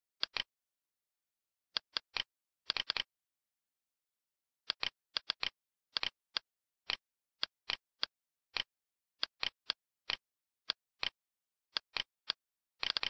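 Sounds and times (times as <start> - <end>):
computer mouse clicking: 0.2 - 0.5, 1.8 - 3.1, 4.7 - 6.2, 7.7 - 11.2, 11.8 - 13.0.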